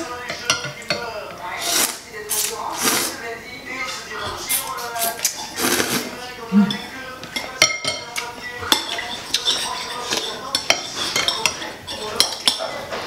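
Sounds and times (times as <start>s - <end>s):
utensils clinking on bowls: 0.2s - 3.1s, 3.7s - 13.0s.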